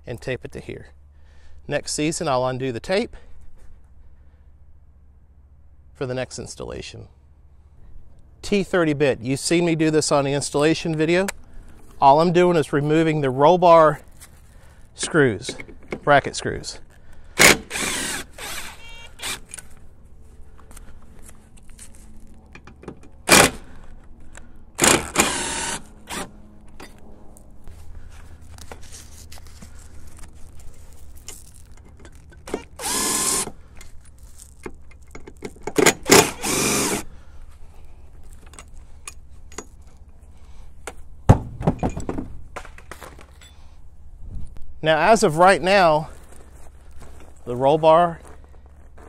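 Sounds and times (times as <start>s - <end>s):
impact driver bursts: 17.4s - 19.6s, 23.2s - 23.8s, 24.8s - 26.3s, 32.5s - 33.6s, 35.8s - 37.1s.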